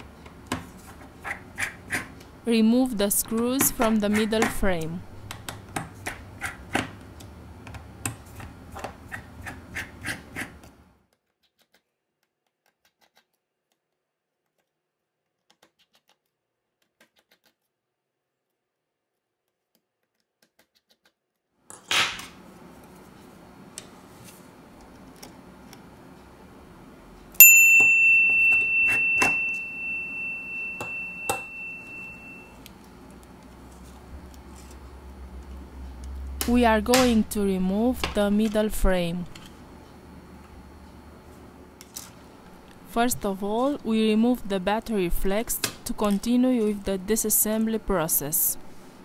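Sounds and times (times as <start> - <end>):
bell-like ding: 27.4 - 32.5.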